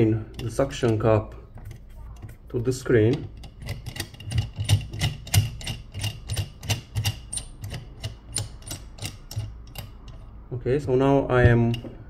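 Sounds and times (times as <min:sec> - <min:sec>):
adjustment screw clicking: 0:03.0 - 0:10.3.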